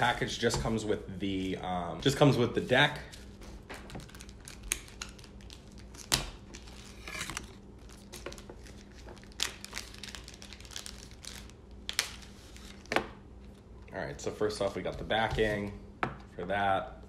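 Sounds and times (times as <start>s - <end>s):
plastic packaging crinkling: 3.3s - 13.6s.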